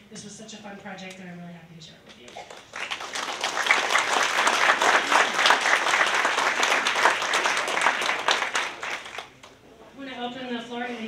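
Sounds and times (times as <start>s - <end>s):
audience applauding: 2.3s - 9.5s.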